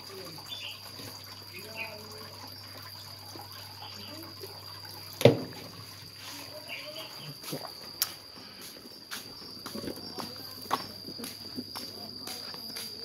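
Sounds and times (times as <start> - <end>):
water trickling: 0.0 - 13.0.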